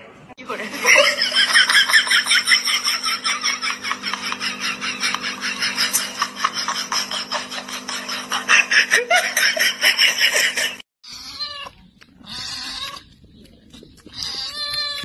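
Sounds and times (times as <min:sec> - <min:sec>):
steady hum: 0:00.3 - 0:10.8
kitten meowing: 0:14.1 - 0:15.0.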